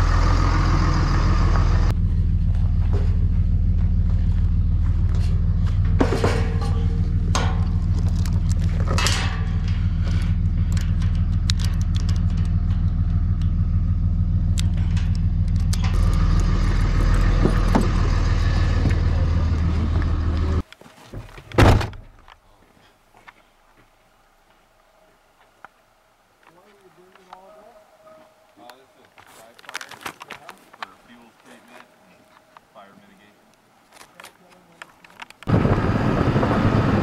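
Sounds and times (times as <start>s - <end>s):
vehicle engine idling: 0.0s - 20.6s
loud thump: 21.5s - 22.1s.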